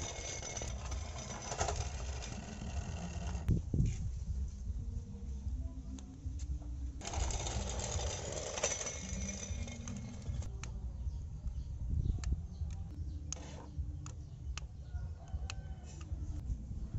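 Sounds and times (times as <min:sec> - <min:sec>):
electric motor and gears whirring: 0:00.0 - 0:04.1, 0:07.0 - 0:10.6, 0:12.2 - 0:14.7.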